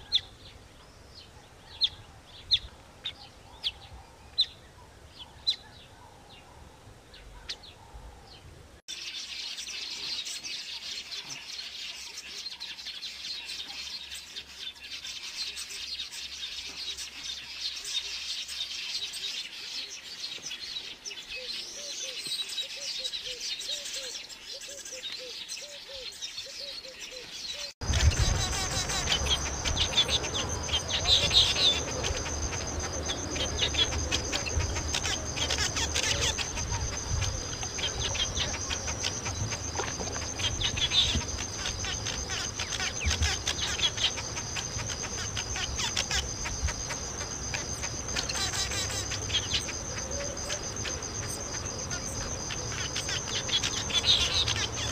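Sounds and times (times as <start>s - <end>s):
birds chirping: 0.0s - 54.9s
high-pitched insect trill: 27.8s - 54.9s.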